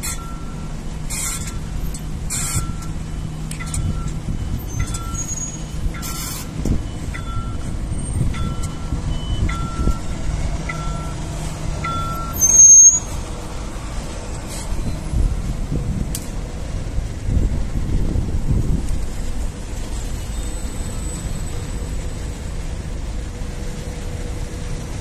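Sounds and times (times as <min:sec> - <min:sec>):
loud burst with high squeal: 0:00.0 - 0:02.9, 0:04.4 - 0:09.9, 0:12.0 - 0:13.2, 0:20.1 - 0:22.0
bus engine hum: 0:00.0 - 0:25.0
short high beeps: 0:00.1 - 0:00.7, 0:01.4 - 0:10.1, 0:10.7 - 0:11.2, 0:11.8 - 0:13.2.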